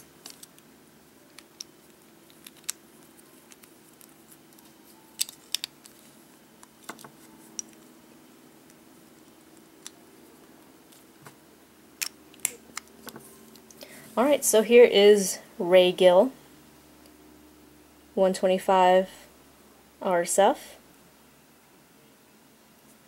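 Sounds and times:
toy parts clicking and tapping: 1.3s - 4.1s, 5.2s - 6.0s.

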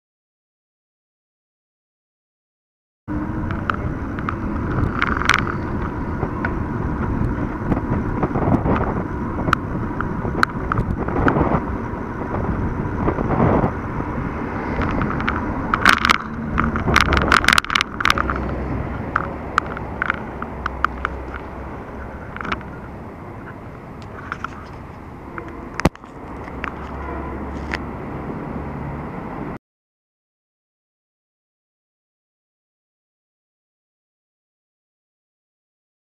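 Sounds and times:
bike tyre rumble: 3.1s - 28.2s
wind noise: 3.1s - 29.6s
camera mount rattling: 3.5s - 5.9s, 14.8s - 21.6s, 22.3s - 22.8s, 24.0s - 27.8s.

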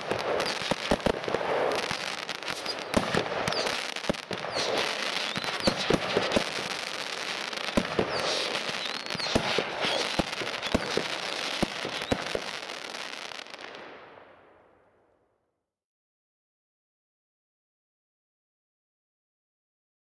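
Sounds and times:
firework whistles: 0.0s - 13.6s
firework bangs: 0.0s - 14.3s
firework crackle: 0.0s - 14.6s.

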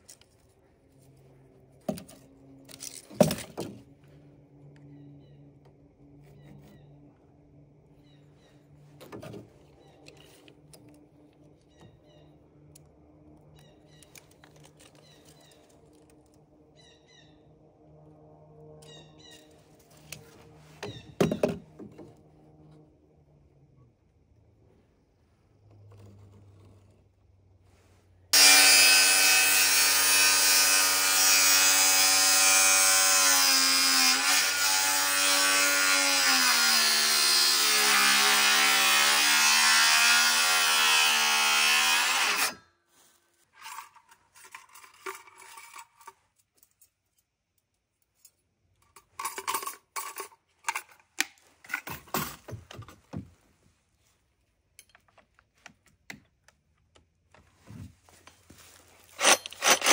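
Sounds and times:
power saw cutting wood: 28.3s - 42.6s, 59.1s - 59.9s.

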